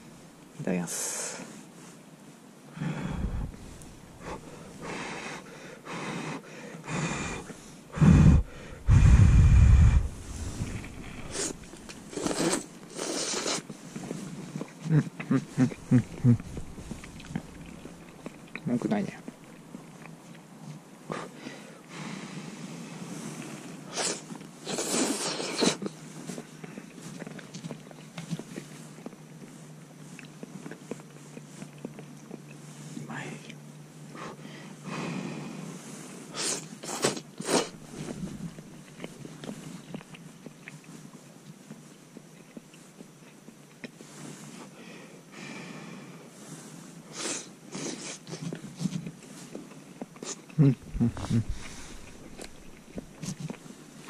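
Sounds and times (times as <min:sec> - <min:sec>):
man blowing on food: 0:02.7 - 0:13.7, 0:14.9 - 0:17.4, 0:36.3 - 0:38.3, 0:50.2 - 0:53.4
man slurping noodles: 0:02.8 - 0:05.4, 0:06.2 - 0:13.7, 0:15.3 - 0:17.8, 0:23.9 - 0:25.8, 0:50.6 - 0:53.4.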